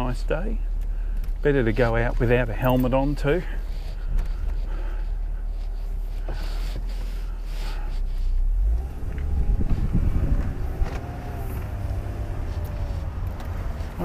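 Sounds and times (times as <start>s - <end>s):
car engine: 0.0s - 14.0s
wind rumble: 8.6s - 14.0s.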